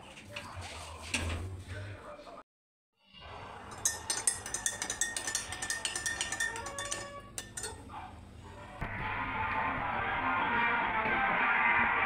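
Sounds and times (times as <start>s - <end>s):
spoon clinking in a mug: 3.7s - 8.0s.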